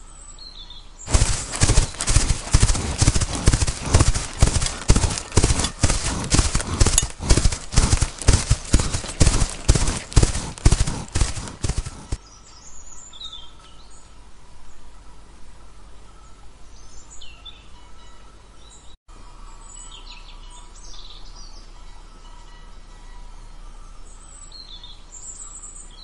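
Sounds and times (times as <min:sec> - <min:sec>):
hoofbeats on hard ground: 0:01.1 - 0:12.2.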